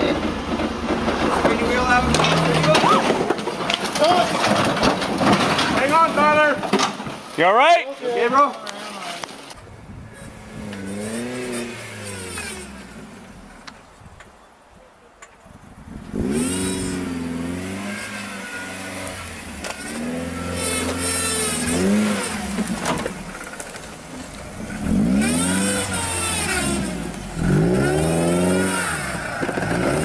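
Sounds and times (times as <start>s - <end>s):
engine revving under load: 10.1s - 13.6s, 16.0s - 23.8s, 24.5s - 30.0s.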